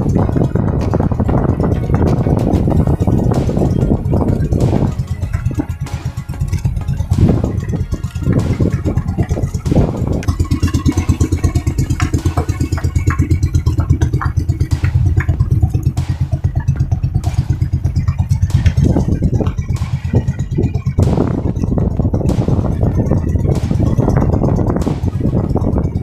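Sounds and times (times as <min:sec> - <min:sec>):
boat engine chugging: 0:00.0 - 0:26.0.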